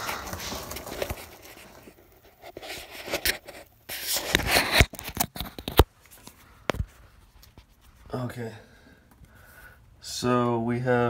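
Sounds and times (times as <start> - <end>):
camera handling scraping and rustling: 0.0 - 7.9.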